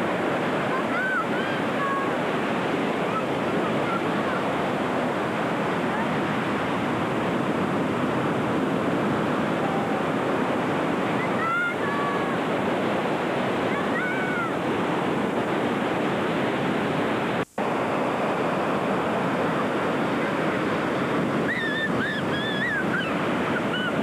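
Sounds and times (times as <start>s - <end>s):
ocean surf breaking on beach: 0.0s - 24.0s
faint high calls: 21.4s - 24.0s.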